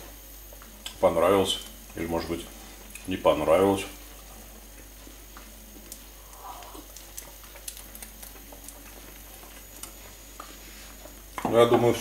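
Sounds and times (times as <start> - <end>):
small pops and crackles: 5.3 - 10.5.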